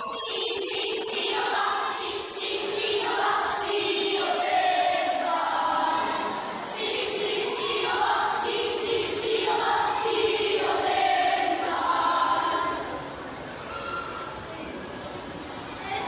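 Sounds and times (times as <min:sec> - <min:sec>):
children chanting in unison: 0:00.2 - 0:13.1.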